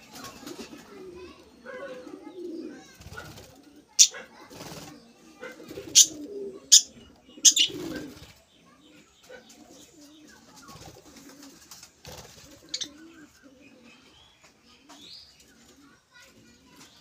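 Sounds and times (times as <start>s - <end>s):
low wavering cooing: 5.6s - 8.2s.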